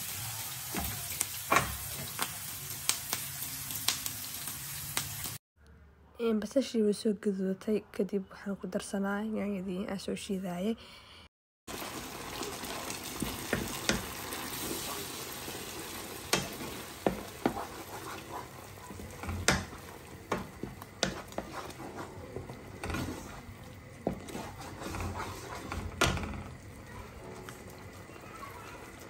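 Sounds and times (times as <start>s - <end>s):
sauce sizzling in a frying pan: 0.0s - 5.4s, 11.7s - 29.0s
spoon scraping a pan: 16.3s - 26.5s.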